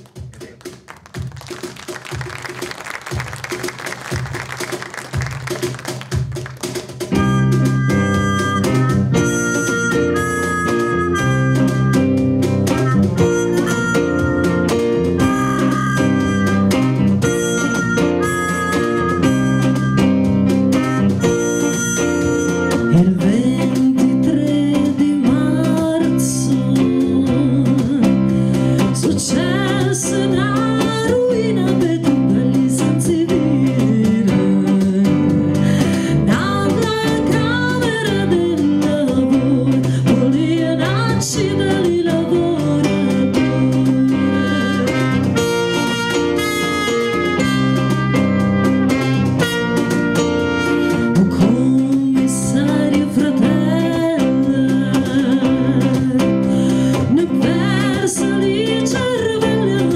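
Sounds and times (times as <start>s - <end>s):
band playing: 0.0s - 59.9s
woman singing: 22.9s - 45.6s, 51.1s - 59.9s.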